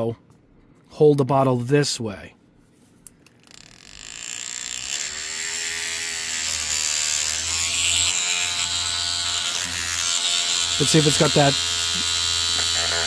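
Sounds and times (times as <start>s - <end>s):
paint shaker motor running: 8.4s - 13.0s.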